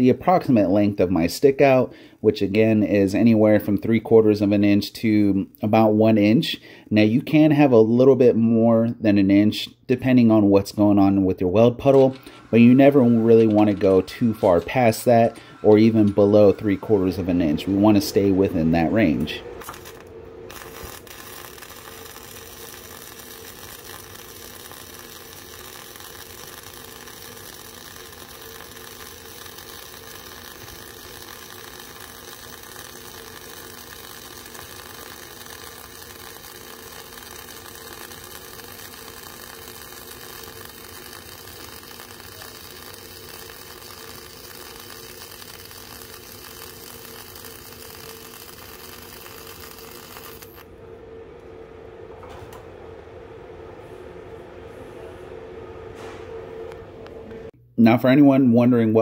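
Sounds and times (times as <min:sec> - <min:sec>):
welding arc crackling: 0:11.5 - 0:50.8.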